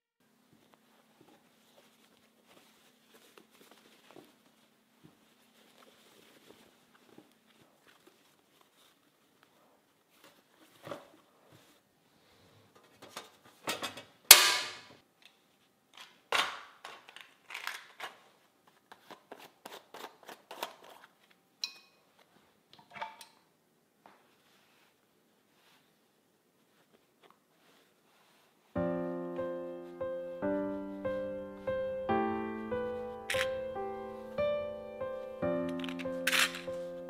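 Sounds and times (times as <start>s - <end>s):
fabric rustle: 0.3s - 13.6s, 24.1s - 37.0s.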